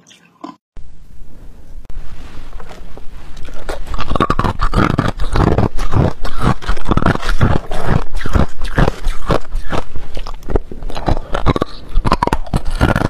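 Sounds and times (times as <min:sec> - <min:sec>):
ice crunching between teeth: 0:03.3 - 0:13.0.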